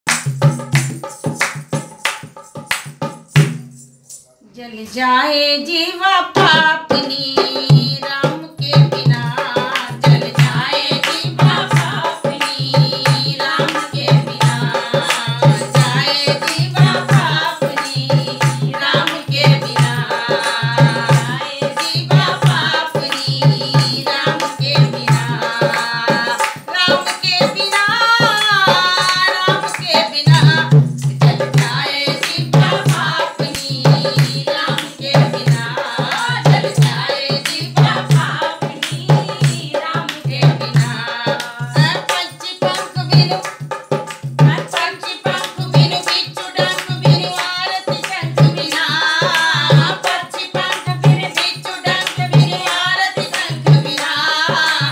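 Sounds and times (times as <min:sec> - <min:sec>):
hand clapping: 0:00.0 - 0:03.6, 0:31.6 - 0:54.9
hand drum rhythm: 0:00.1 - 0:04.2, 0:06.4 - 0:54.9
women singing devotional song: 0:04.5 - 0:54.9.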